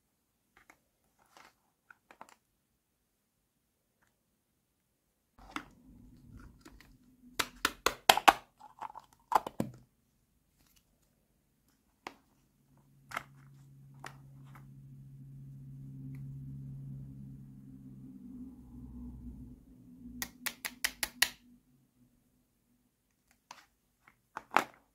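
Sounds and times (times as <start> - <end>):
low steady hum: 5.4 - 7.6, 10.1 - 20.3.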